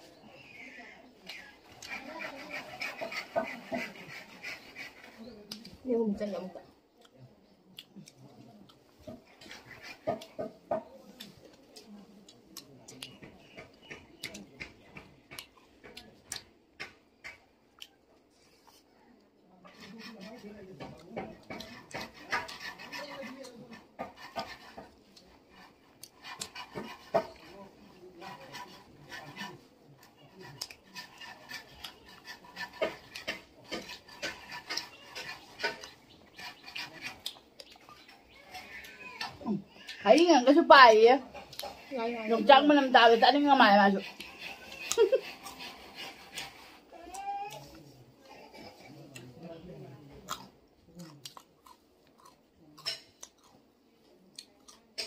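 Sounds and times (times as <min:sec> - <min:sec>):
fingers mixing rice: 0:01.2 - 0:07.2, 0:07.8 - 0:53.6
chewing and mouth smacks: 0:06.9 - 0:10.3, 0:11.1 - 0:14.6, 0:15.2 - 0:16.5, 0:17.3 - 0:18.0, 0:34.6 - 0:38.1, 0:50.3 - 0:53.6.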